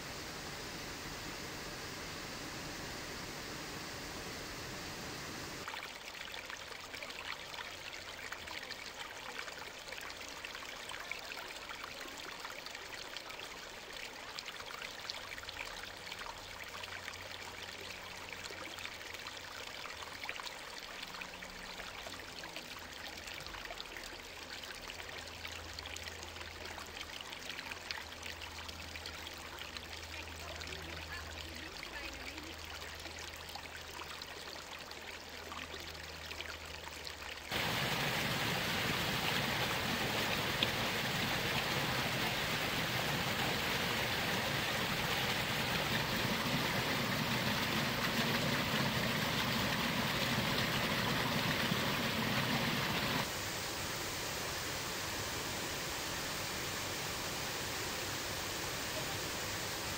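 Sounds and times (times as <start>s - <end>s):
waterfall hissing: 0.0s - 5.7s, 37.5s - 59.9s
stream babbling over stones: 26.2s - 53.3s.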